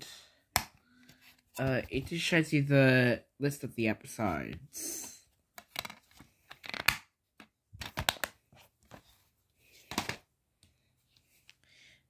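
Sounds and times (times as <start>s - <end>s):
plastic cases clicking and rattling: 5.6s - 9.0s.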